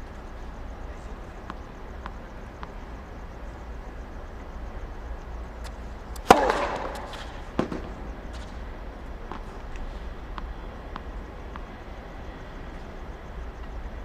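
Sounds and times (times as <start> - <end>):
racket hitting tennis ball: 5.6 - 8.7.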